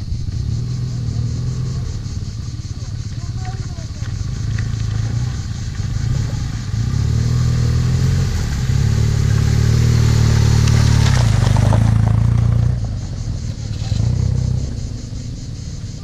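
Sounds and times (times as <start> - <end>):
motorcycle engine at low revs: 0.0 - 16.0
water splashing from wheels: 2.7 - 14.4.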